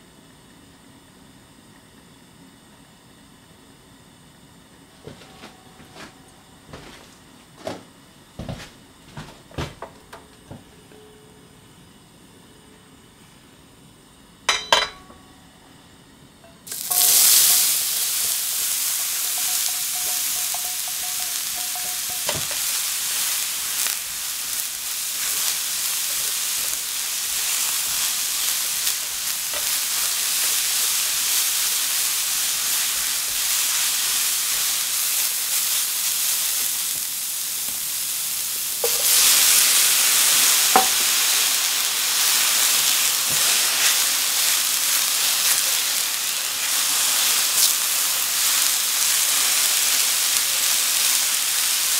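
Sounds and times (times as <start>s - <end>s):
vegetables sizzling in oil: 14.5s - 51.9s.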